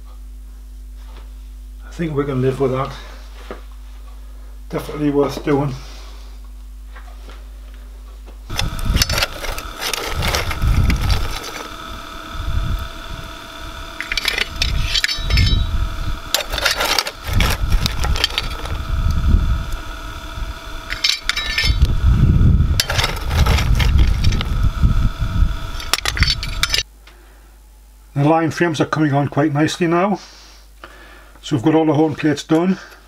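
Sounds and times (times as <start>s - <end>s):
steady whine: 0.0s - 33.0s
coal lumps clinking and rattling: 8.5s - 12.0s, 13.9s - 15.7s, 16.3s - 18.8s, 20.8s - 21.9s, 22.8s - 24.5s, 25.8s - 26.8s
uneven low rumble: 8.5s - 26.8s.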